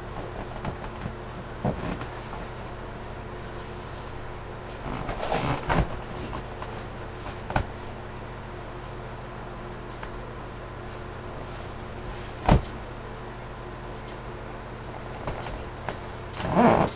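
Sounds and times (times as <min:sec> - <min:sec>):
low electrical hum: 0:00.0 - 0:16.9
rubbing and creaking of balloon: 0:04.7 - 0:06.4, 0:16.3 - 0:16.9.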